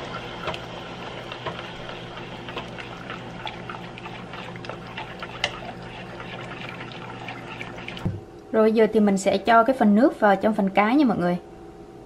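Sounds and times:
broth bubbling and crackling: 0.0 - 8.2
juice trickling into pot: 0.0 - 8.2.

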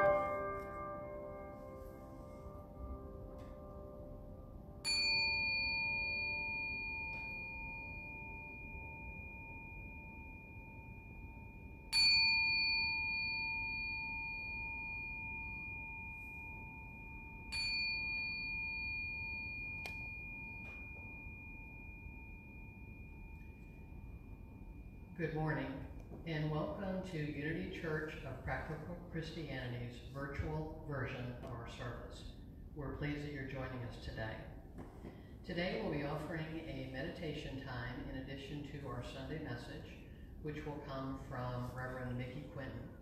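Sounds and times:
metal chime ringing: 0.0 - 26.0.

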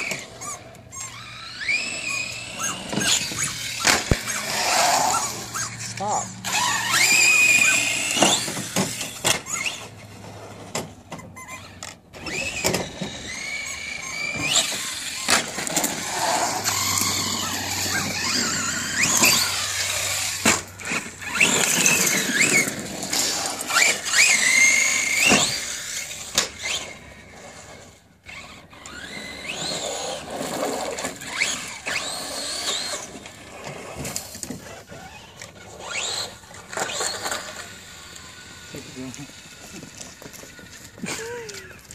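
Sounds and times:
electric motor whine: 0.0 - 10.7, 11.5 - 41.9
tyres scrabbling over gravel: 12.2 - 41.9.

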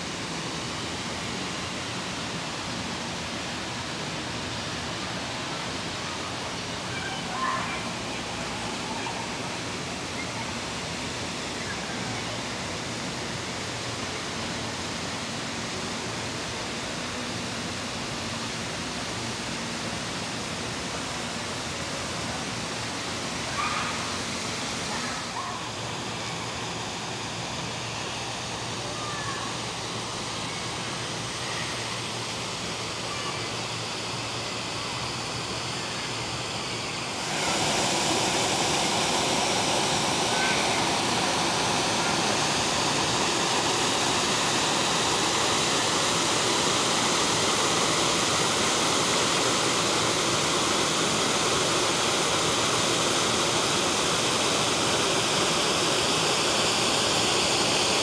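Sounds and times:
waterfall rushing: 0.0 - 58.0.

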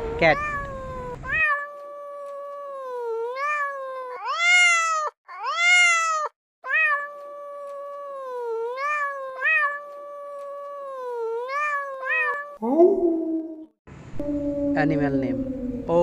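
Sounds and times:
kitten meowing: 0.0 - 12.6.

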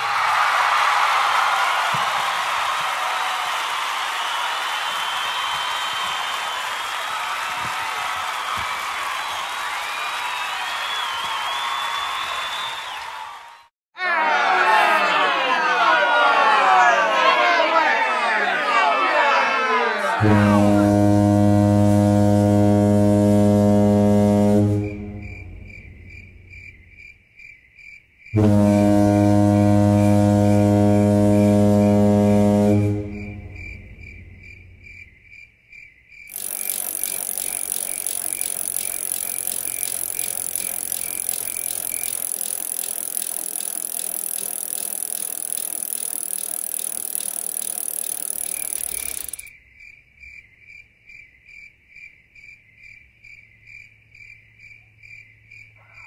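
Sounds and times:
cricket chirping: 25.1 - 28.4, 33.1 - 56.0.

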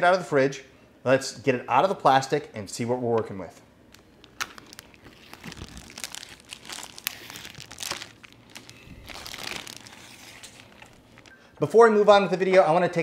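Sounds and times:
plastic wrapping crinkling and tearing: 3.9 - 11.4.

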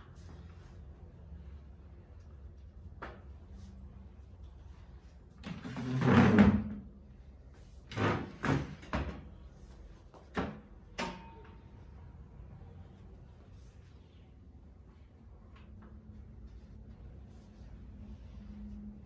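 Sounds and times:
wooden chair scraping across floor: 5.4 - 6.9.

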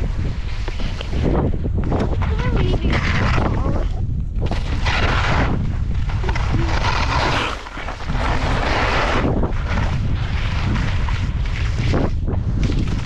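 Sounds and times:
skis scraping over snow: 0.0 - 13.0
wind buffeting microphone: 0.0 - 13.0.

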